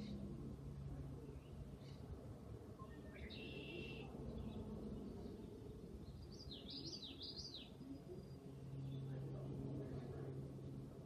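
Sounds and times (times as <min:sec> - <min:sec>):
low background noise: 0:00.0 - 0:11.0
small bird chirping: 0:06.1 - 0:08.4.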